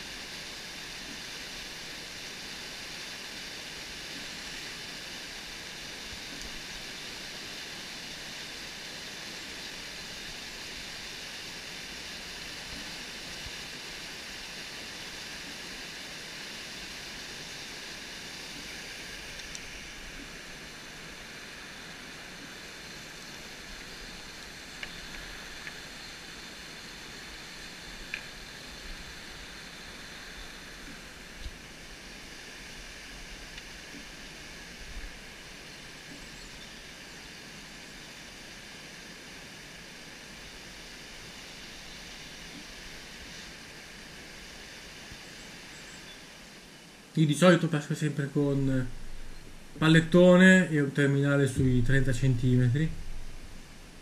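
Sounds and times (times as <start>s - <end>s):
whitewater rushing over boulders: 0.0s - 54.0s
faint clicks: 6.3s - 6.6s, 19.3s - 20.3s, 23.3s - 25.9s, 28.0s - 28.4s, 33.5s - 34.1s.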